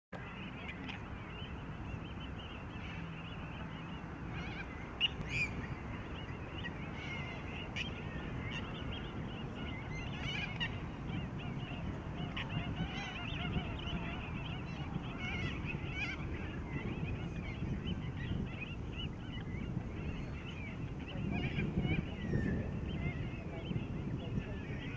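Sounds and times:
birds chorus: 0.2 - 24.9.

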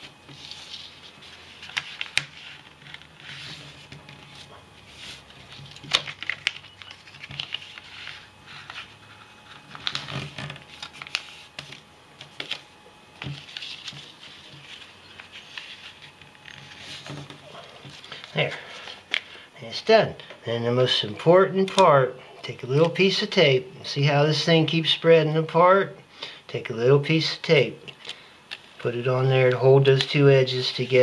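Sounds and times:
paper rustling and crinkling: 0.3 - 12.6, 13.2 - 19.3.

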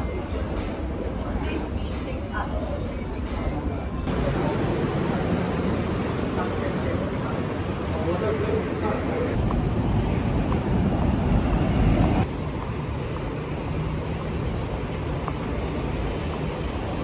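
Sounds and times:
traffic noise: 0.0 - 17.0
hum of passing cars: 4.1 - 17.0.

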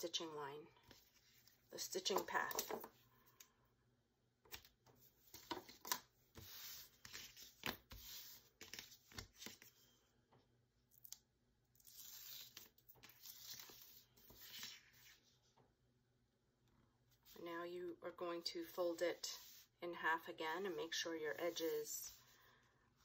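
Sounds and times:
tape peeling and tearing: 11.8 - 13.7.

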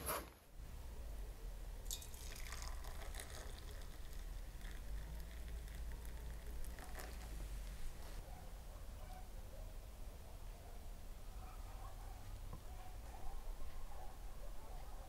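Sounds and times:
coffee trickling into glass: 1.8 - 8.1.

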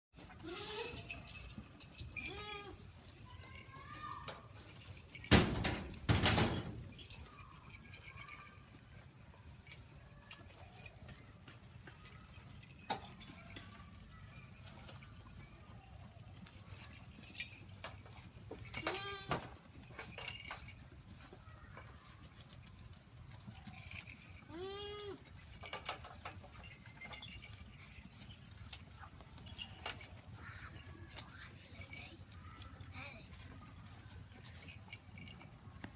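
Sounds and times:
goats eating grass: 0.1 - 35.9
goats bleating: 0.3 - 1.1, 2.2 - 2.8, 24.5 - 25.3.

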